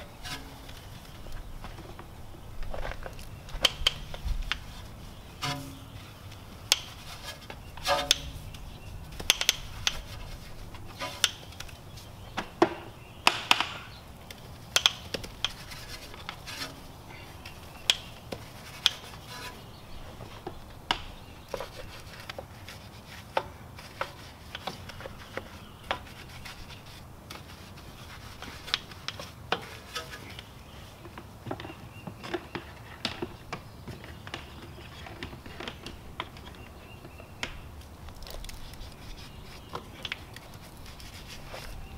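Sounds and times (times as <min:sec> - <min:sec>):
scrubbing a soapy wheel: 0:38.2 - 0:41.9.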